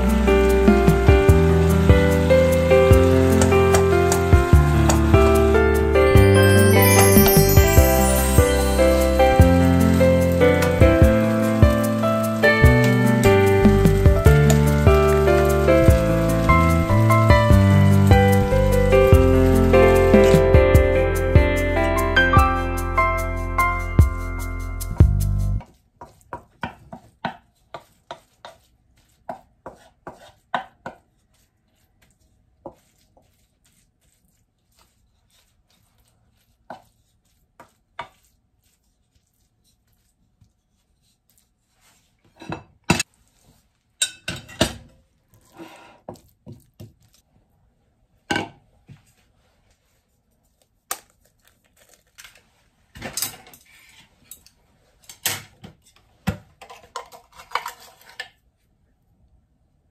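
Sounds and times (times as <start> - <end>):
wooden spatula scraping frying pan: 26.0 - 31.5.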